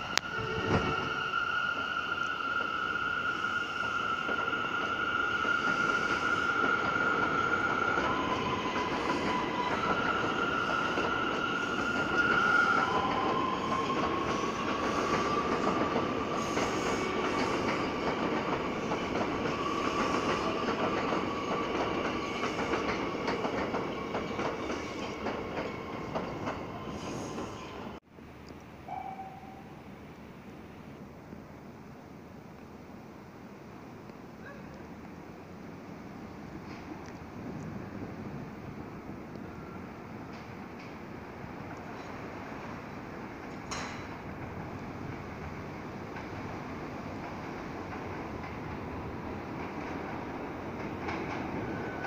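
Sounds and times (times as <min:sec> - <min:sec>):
train electric whine: 0:00.0 - 0:28.0.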